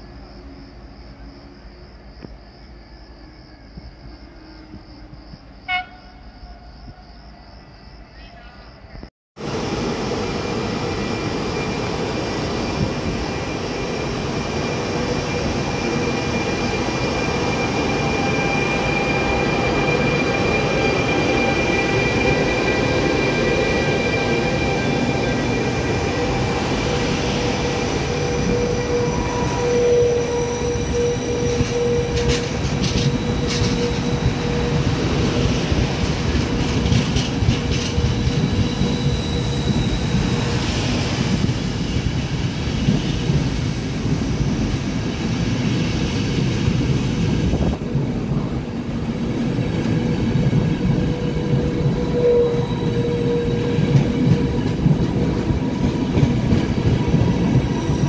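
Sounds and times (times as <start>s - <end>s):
train wheels rumbling on rails: 8.9s - 58.0s
high-pitched wheel squealing: 11.0s - 35.8s.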